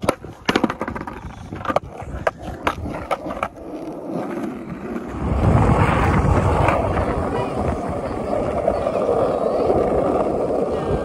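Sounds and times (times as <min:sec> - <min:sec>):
skateboard clicks and knocks: 0:00.0 - 0:11.0
skateboard wheels rolling on concrete: 0:00.0 - 0:11.0.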